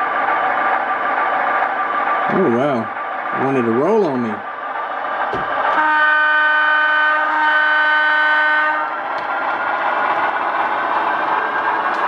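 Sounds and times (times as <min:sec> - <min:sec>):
model locomotive horn blast: 0:05.8 - 0:09.0.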